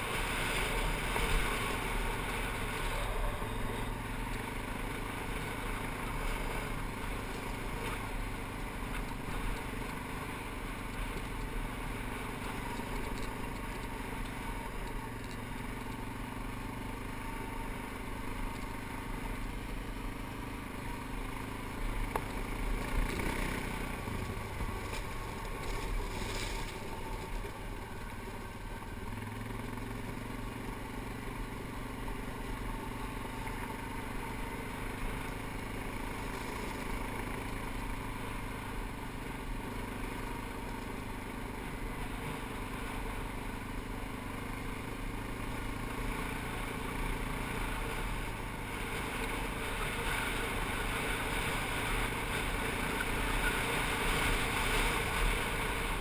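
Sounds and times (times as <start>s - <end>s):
atv engine running: 0.0s - 56.0s
tyres rolling on gravel: 23.9s - 28.5s.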